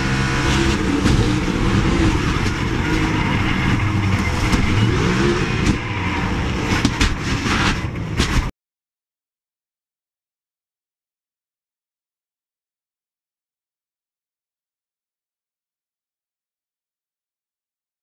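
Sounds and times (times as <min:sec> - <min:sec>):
race car engine: 0:00.0 - 0:08.5
car crash bangs and scraping: 0:00.5 - 0:08.5.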